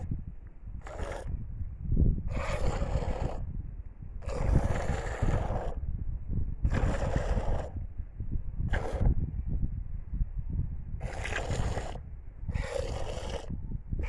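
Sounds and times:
low rumble: 0.0 - 14.0.

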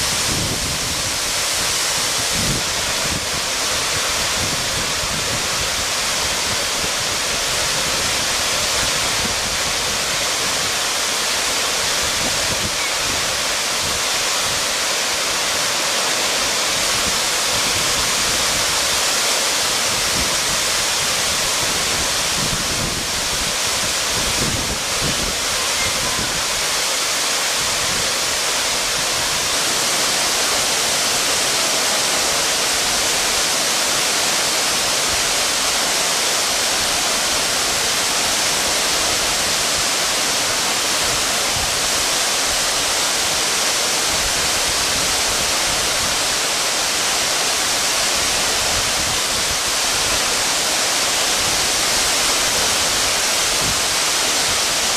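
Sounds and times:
waterfall rushing: 0.0 - 54.9.

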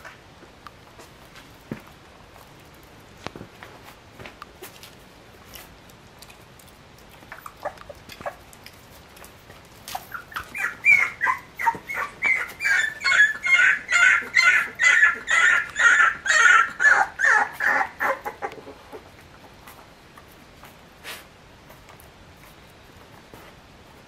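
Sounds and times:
puppy whimpering: 7.3 - 8.5, 9.8 - 19.5.

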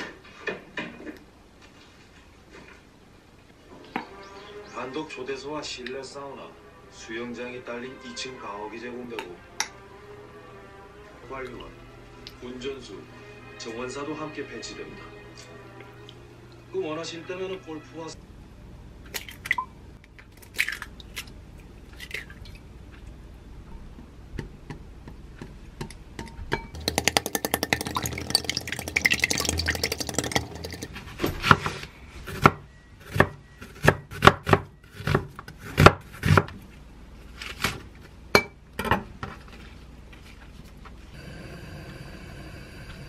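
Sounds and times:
utensil beating against glass: 26.2 - 30.9
eggs cracked into glass bowl: 26.7 - 30.9.

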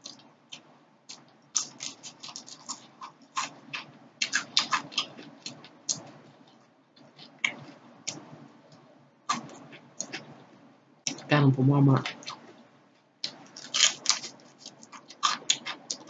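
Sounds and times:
mouth chewing crisp food: 0.0 - 8.2, 13.2 - 16.0.

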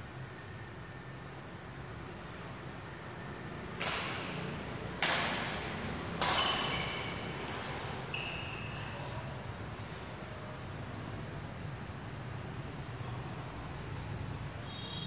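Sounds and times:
racket striking shuttlecock: 3.7 - 8.9
shoes squeaking on court floor: 6.2 - 9.0.

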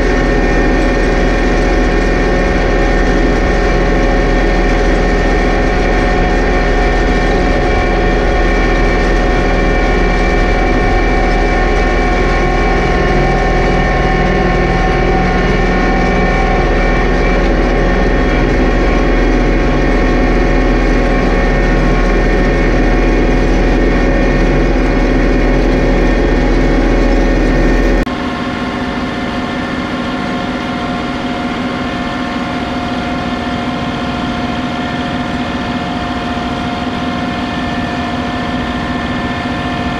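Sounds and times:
tractor diesel engine running: 0.0 - 28.1.

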